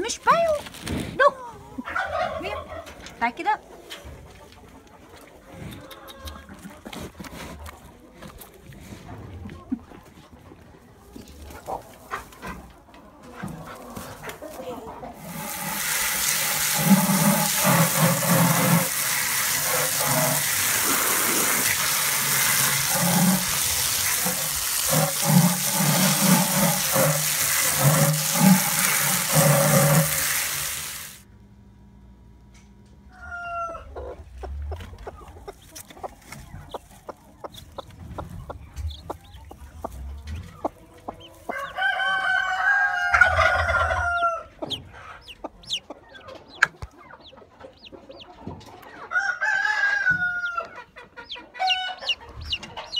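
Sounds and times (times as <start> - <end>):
water rushing: 15.2 - 31.2.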